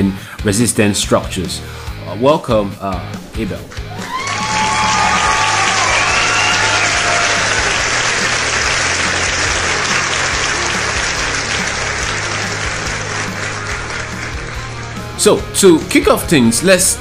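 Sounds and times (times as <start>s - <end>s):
audience clapping: 3.4s - 15.3s
cheers: 3.7s - 13.9s.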